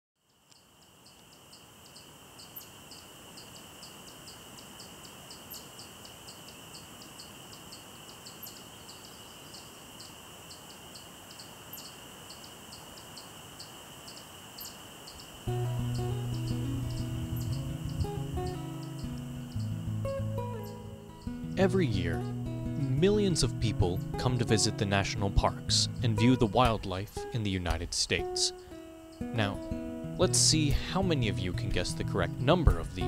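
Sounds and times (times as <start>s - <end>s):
insects chirping: 0.2s - 33.0s
steady high insect drone: 0.2s - 33.0s
sharp high chirp: 15.5s - 21.4s.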